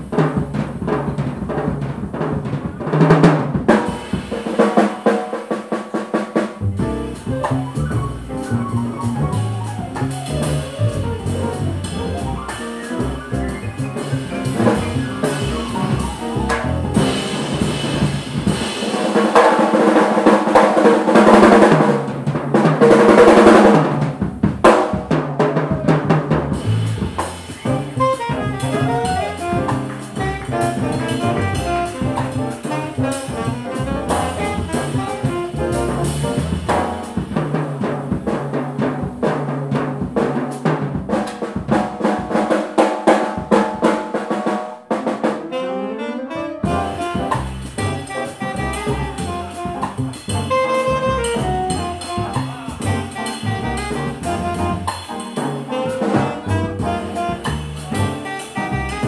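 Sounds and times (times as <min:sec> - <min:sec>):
drum kit: 0:00.0 - 0:59.0
upright piano: 0:00.0 - 0:59.0
double bass: 0:06.6 - 0:19.0, 0:25.5 - 0:40.9, 0:46.3 - 0:59.0
saxophone: 0:10.2 - 0:18.2, 0:27.4 - 0:36.7, 0:45.4 - 0:59.0.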